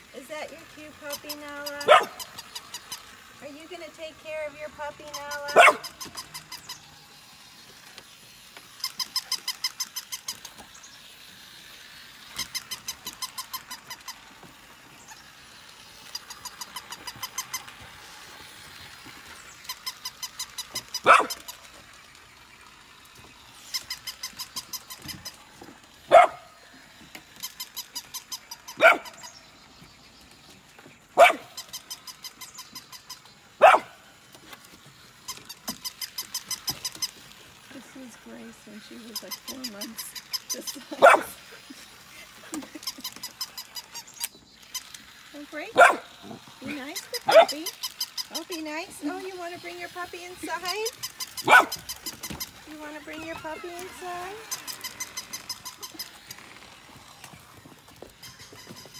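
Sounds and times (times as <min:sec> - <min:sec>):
puppy barking: 0:01.8 - 0:02.3, 0:05.5 - 0:06.0, 0:20.9 - 0:21.5, 0:26.1 - 0:26.5, 0:28.7 - 0:29.3, 0:31.2 - 0:31.5, 0:33.6 - 0:34.0, 0:40.9 - 0:41.4, 0:45.8 - 0:46.1, 0:47.1 - 0:47.7, 0:51.4 - 0:51.9.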